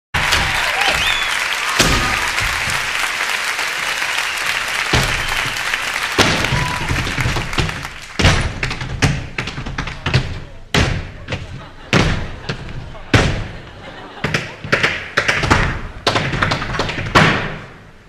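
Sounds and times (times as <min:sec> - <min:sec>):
audience applauding and cheering: 0:00.2 - 0:08.9
whistles from audience: 0:00.4 - 0:01.8, 0:03.9 - 0:07.0
tap boots stomping on wooden stage: 0:04.9 - 0:05.6, 0:06.2 - 0:13.6.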